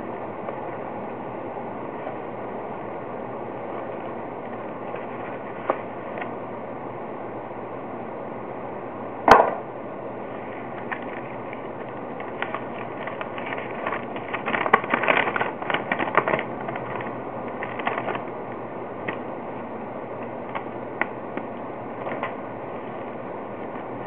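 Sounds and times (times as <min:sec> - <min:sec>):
packaging clicks and crackles: 0:10.7 - 0:18.3.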